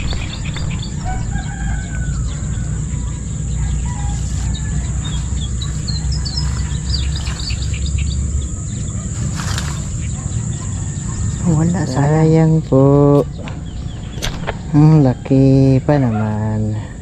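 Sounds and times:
rooster crowing: 0:00.0 - 0:07.6, 0:14.6 - 0:17.0
high-pitched whine: 0:00.0 - 0:17.0
low rumble: 0:00.0 - 0:17.0
small birds chirping: 0:00.0 - 0:17.0.

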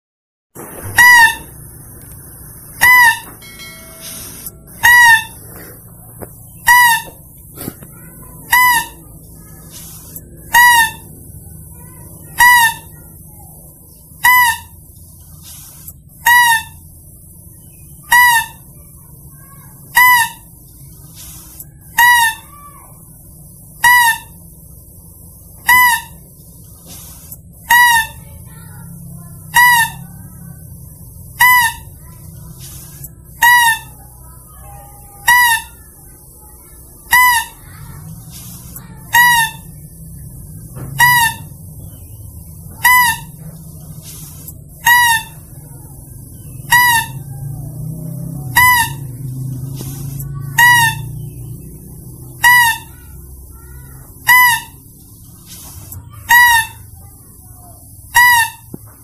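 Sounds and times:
faint low hum: 0:00.6 - 0:59.0
high squeaky lure call: 0:00.8 - 0:01.6, 0:02.8 - 0:13.3, 0:14.2 - 0:14.9, 0:16.2 - 0:16.9, 0:17.8 - 0:18.8, 0:19.4 - 0:20.6, 0:21.2 - 0:22.9, 0:23.8 - 0:24.6, 0:25.6 - 0:26.3, 0:27.1 - 0:30.5, 0:31.4 - 0:32.1, 0:32.8 - 0:40.0, 0:40.9 - 0:41.8, 0:42.4 - 0:43.5, 0:44.1 - 0:47.4, 0:48.5 - 0:49.2, 0:50.0 - 0:51.4, 0:52.0 - 0:55.0, 0:55.6 - 0:58.7.

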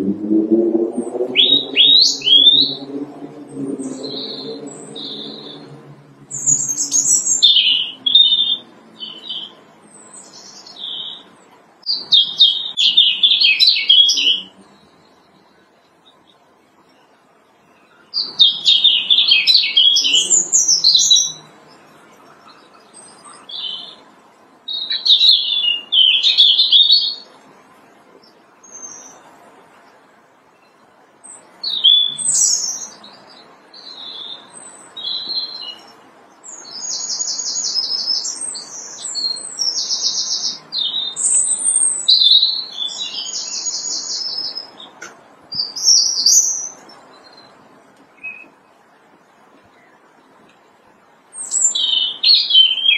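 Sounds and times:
robin singing: 0:00.0 - 0:27.4, 0:28.2 - 0:48.8, 0:51.3 - 0:52.9.

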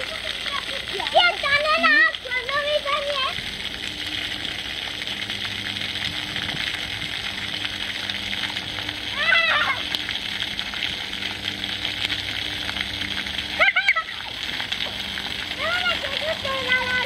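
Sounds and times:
water spray on lawn: 0:00.0 - 0:17.0
child crying out: 0:09.1 - 0:09.9, 0:13.6 - 0:14.3.

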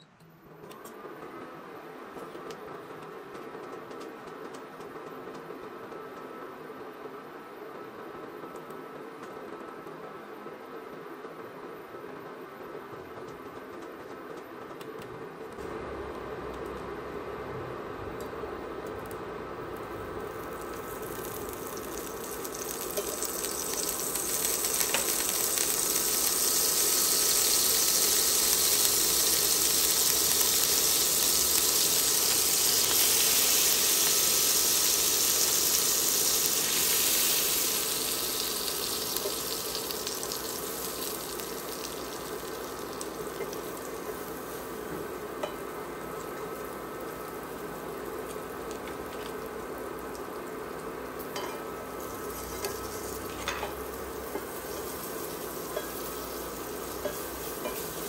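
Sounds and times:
butter sizzling in a skillet: 0:20.2 - 0:58.0.

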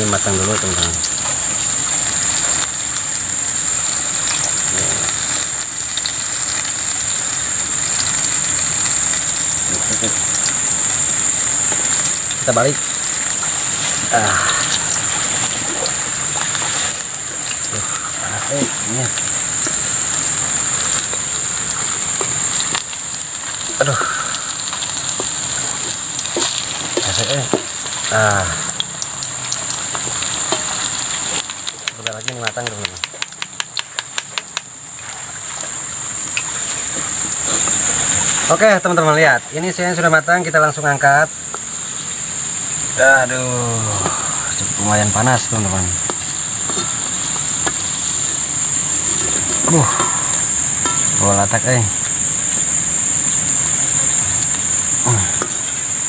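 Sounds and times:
fruit deep-frying in hot oil: 0:00.0 - 0:56.0
chopsticks clicking: 0:31.5 - 0:34.6.

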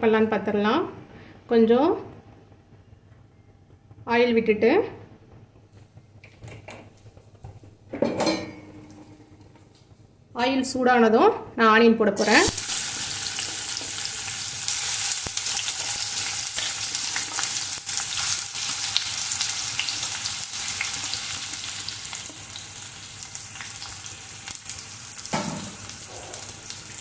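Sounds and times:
onions sizzling in hot oil: 0:12.2 - 0:27.0.

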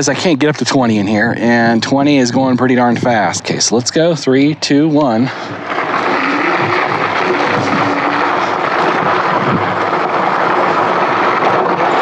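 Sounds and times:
faint steady whine: 0:00.0 - 0:12.0
tyres rolling over gravel: 0:05.1 - 0:12.0
wind rushing on microphone: 0:05.5 - 0:12.0.

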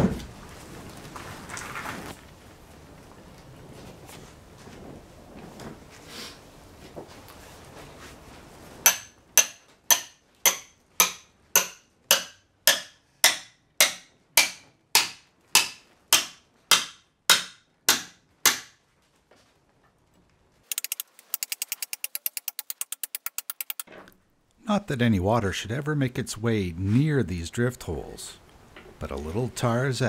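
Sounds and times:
rapid small clicks: 0:20.7 - 0:23.9.

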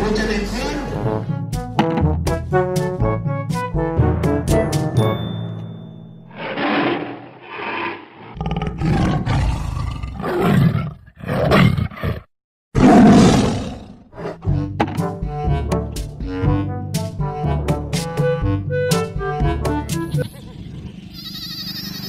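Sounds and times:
tiger roaring and growling: 0:06.3 - 0:14.8.

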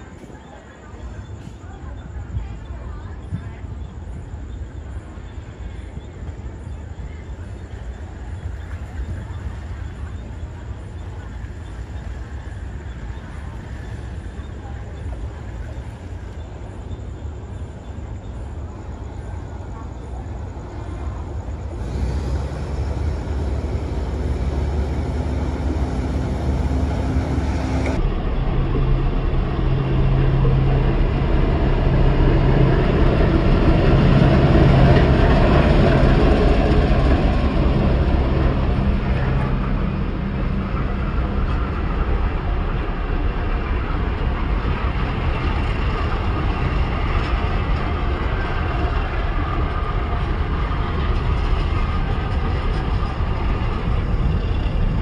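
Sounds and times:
diesel locomotive engine drone: 0:00.0 - 0:55.0
train rumble: 0:00.0 - 0:55.0.

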